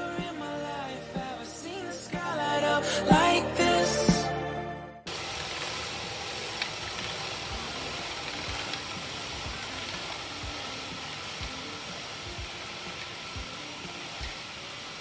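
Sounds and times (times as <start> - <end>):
bike trainer flywheel whirring: 5.1 - 15.0.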